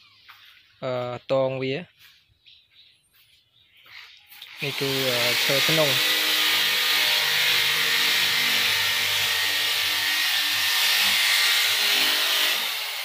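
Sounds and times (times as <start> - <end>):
power tool whirring: 4.4 - 13.0.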